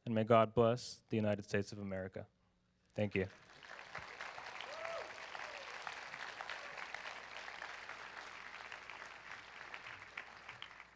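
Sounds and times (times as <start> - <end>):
audience applauding: 3.3 - 10.9.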